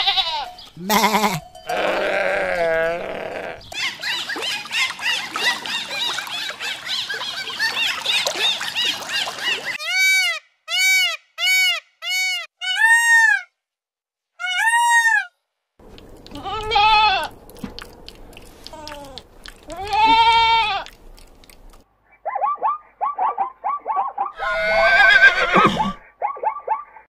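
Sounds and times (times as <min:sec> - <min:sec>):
goat bleating: 0:00.0 - 0:03.7, 0:16.2 - 0:17.4, 0:18.7 - 0:21.0
peafowl calls: 0:00.0 - 0:13.4, 0:22.2 - 0:26.8.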